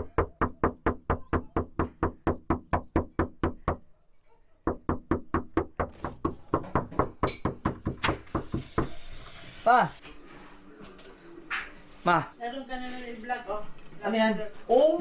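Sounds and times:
knuckles knocking on door: 0.0 - 3.8, 4.7 - 8.7.

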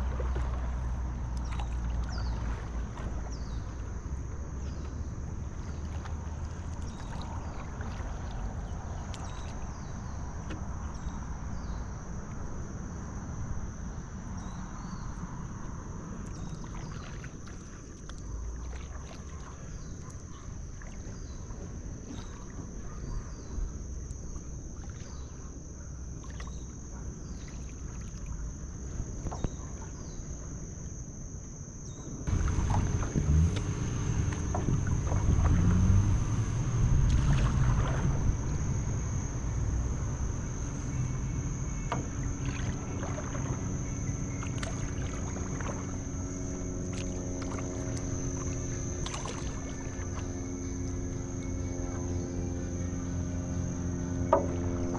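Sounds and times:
small drips and splashes: 0.0 - 3.1, 5.6 - 9.7, 16.2 - 21.2, 26.2 - 26.7, 41.9 - 50.4
low rumble of water and wind: 0.0 - 54.9
thin high whine: 32.3 - 54.9.

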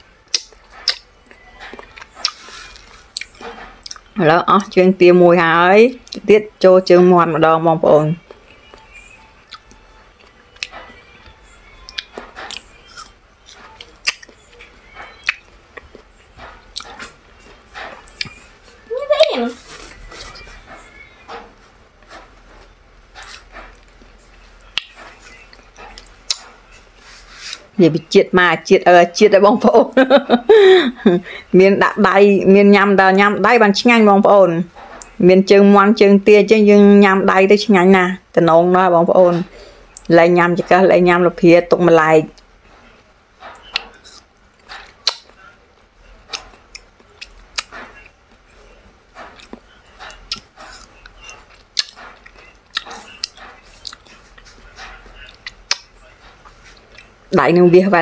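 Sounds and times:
person chewing and smacking: 0.3 - 4.8, 8.3 - 18.9, 19.9 - 27.7, 43.4 - 45.4, 46.2 - 48.5, 49.1 - 57.2
sharp mouth clicks: 45.0 - 45.4, 49.3 - 54.1.

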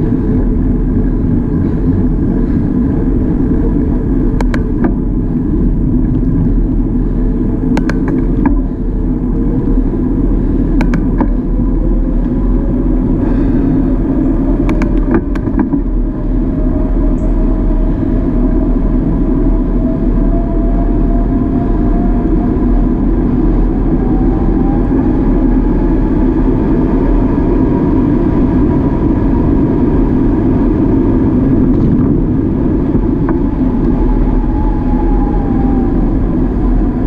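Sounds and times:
bicycle tyre noise on road: 0.0 - 37.0
wind rushing over microphone: 0.0 - 37.0
sharp clicks and knocks: 4.4 - 5.0, 7.7 - 8.7, 10.8 - 11.4, 14.6 - 15.9.

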